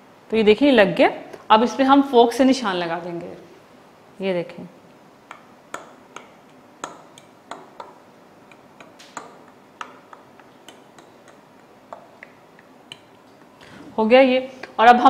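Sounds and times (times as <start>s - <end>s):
fork tapping glass dish: 5.2s - 13.3s.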